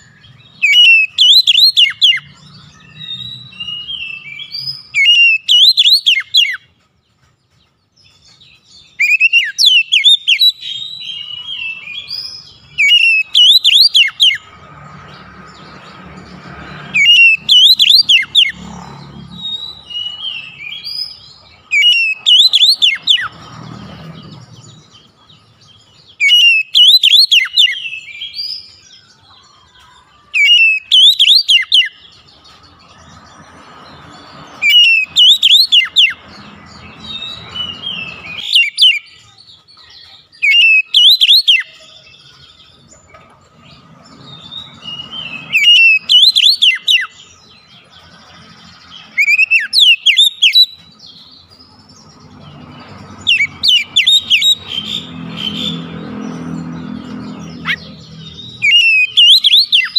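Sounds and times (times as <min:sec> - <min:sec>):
bird singing sweeping whistles: 0:00.0 - 0:06.6, 0:08.8 - 0:14.4, 0:16.9 - 0:18.6, 0:19.4 - 0:23.4, 0:26.2 - 0:28.9, 0:30.4 - 0:32.1, 0:34.6 - 0:36.3, 0:37.0 - 0:39.2, 0:40.4 - 0:42.2, 0:44.4 - 0:47.4, 0:49.1 - 0:50.8, 0:53.2 - 0:56.4, 0:57.4 - 0:59.9.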